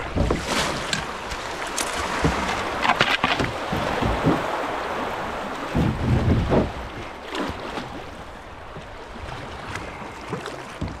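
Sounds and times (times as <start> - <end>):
paddle splashes: 0.0 - 11.0.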